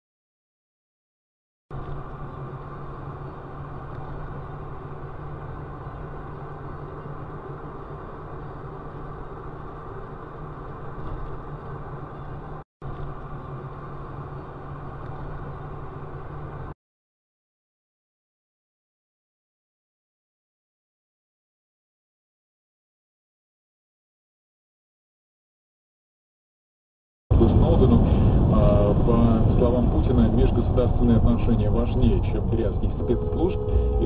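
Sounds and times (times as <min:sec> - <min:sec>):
car engine and road noise: 0:01.7 - 0:16.8, 0:27.3 - 0:34.0
low hum: 0:27.3 - 0:34.0.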